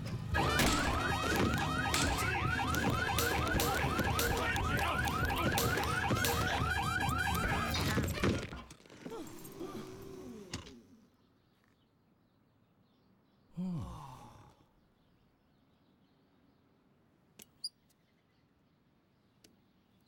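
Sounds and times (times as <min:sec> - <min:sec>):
car alarm whooping: 0:00.4 - 0:08.5
knocks: 0:00.4 - 0:08.6.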